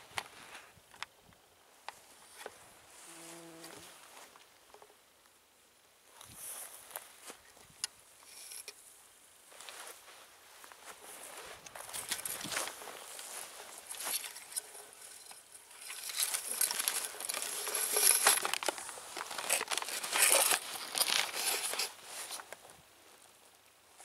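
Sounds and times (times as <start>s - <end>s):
grass rustling and crackling: 6.1s - 24.0s.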